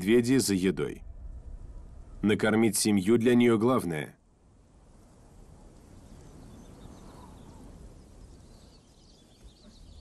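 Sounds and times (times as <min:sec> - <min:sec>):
soft outdoor hiss: 0:00.0 - 0:10.0
faint high bird chirps: 0:05.6 - 0:10.0.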